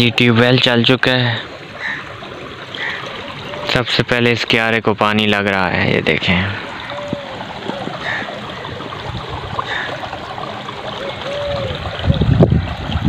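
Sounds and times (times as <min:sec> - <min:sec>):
water gushing from pipe: 0:00.0 - 0:13.0
water splashing into flooded field: 0:05.8 - 0:13.0.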